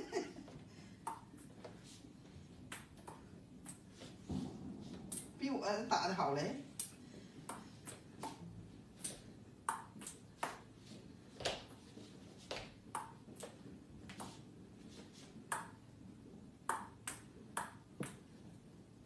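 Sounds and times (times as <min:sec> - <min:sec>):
ping-pong ball clicks: 0:01.0 - 0:01.5, 0:02.7 - 0:03.8, 0:07.5 - 0:10.7, 0:12.9 - 0:14.4, 0:15.5 - 0:15.8, 0:16.7 - 0:18.2.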